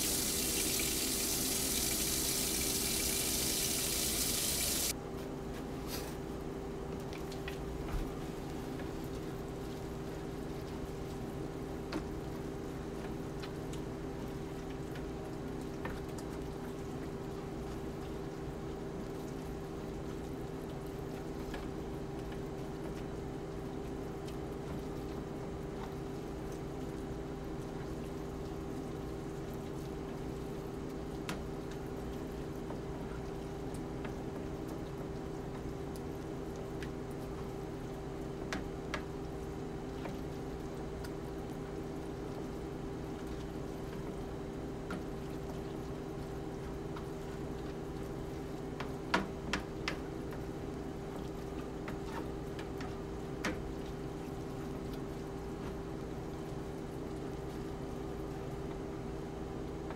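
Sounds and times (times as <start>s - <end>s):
meat sizzling in a skillet: 0.0s - 4.9s
steady hum: 0.0s - 5.0s.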